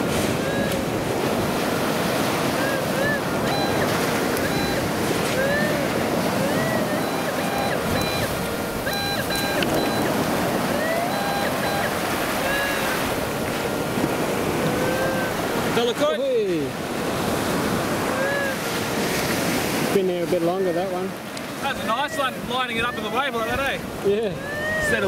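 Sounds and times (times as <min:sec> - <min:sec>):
surf washing on beach: 0:00.0 - 0:25.0
metal detector beeps: 0:02.6 - 0:05.8, 0:06.4 - 0:13.1
metal detector tones: 0:03.4 - 0:05.8, 0:06.4 - 0:13.1.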